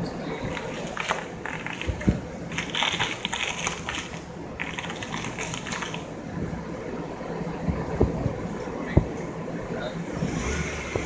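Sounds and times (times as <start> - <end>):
steering actuator whirring and scraping: 10.1 - 11.0.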